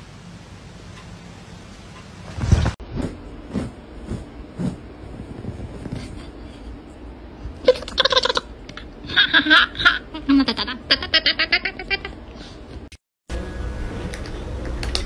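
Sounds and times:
person laughing: 7.6s - 12.3s.

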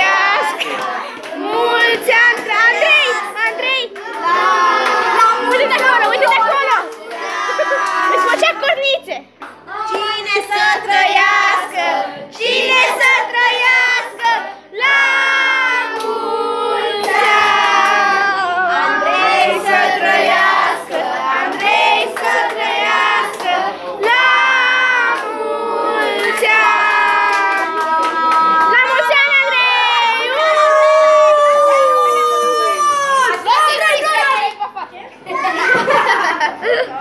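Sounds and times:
children singing in chorus: 0.0s - 3.1s, 9.7s - 28.7s.

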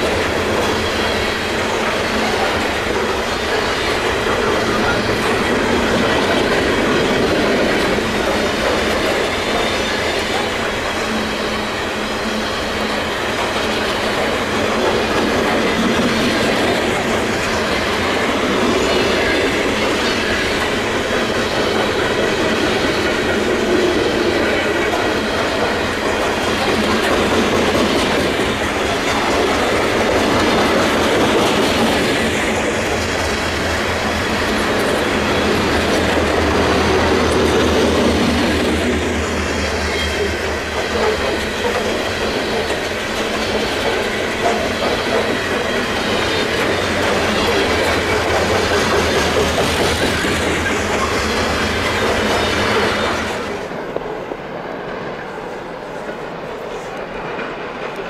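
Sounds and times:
train wheels clattering over rail joints: 0.0s - 54.2s.

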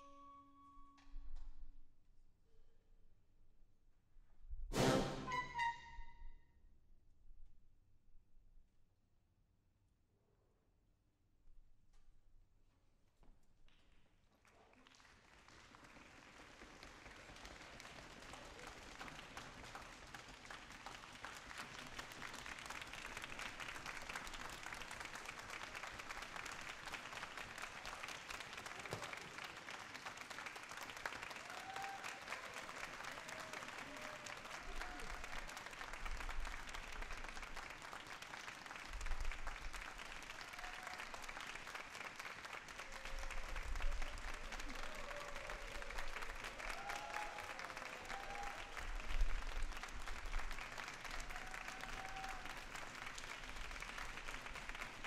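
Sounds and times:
audience applauding: 14.4s - 55.0s.

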